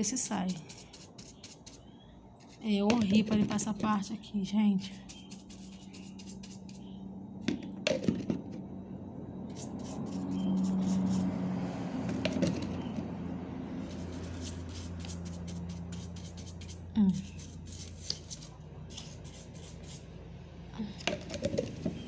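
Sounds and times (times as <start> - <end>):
brush scrubbing metal: 0.4 - 1.8, 4.9 - 6.8, 9.5 - 11.2, 13.9 - 20.0
low hum: 1.8 - 22.0.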